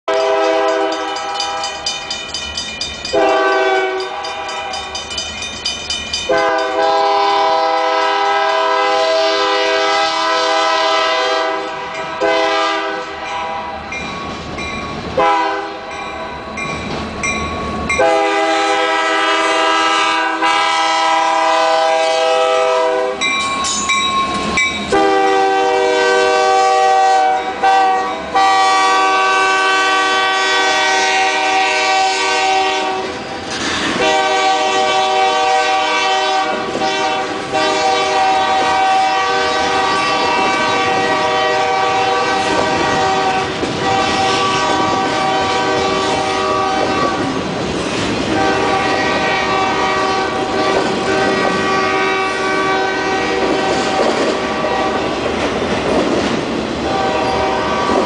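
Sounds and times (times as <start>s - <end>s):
locomotive air horn blasts: 0.1s - 1.8s, 3.2s - 4.7s, 6.3s - 13.9s, 15.2s - 15.9s, 18.0s - 23.2s, 24.9s - 33.2s, 34.0s - 47.4s, 48.3s - 55.1s, 56.8s - 58.0s
crossing warning bell ringing: 0.1s - 7.8s, 11.5s - 19.3s, 22.8s - 29.1s, 37.5s - 47.5s
train passing: 0.1s - 58.0s.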